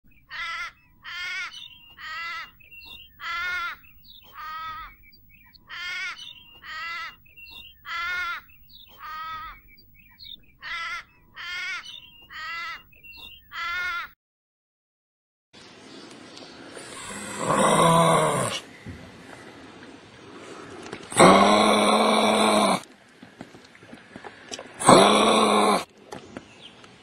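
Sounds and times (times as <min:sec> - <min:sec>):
crow cawing: 0:00.3 - 0:02.5, 0:03.2 - 0:05.0, 0:05.7 - 0:07.2, 0:07.9 - 0:09.6, 0:10.6 - 0:12.8, 0:13.5 - 0:14.1.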